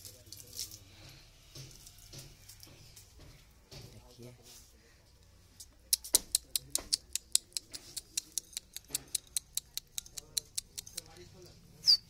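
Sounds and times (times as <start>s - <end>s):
beak clicking on metal bowl: 5.9s - 11.1s.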